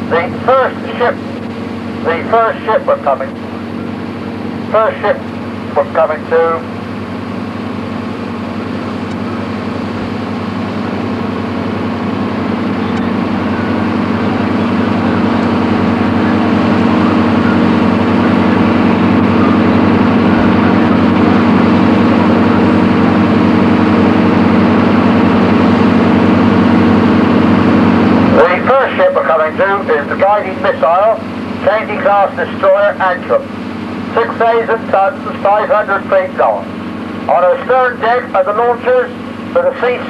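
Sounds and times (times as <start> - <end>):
boat engine droning: 0.0 - 40.0.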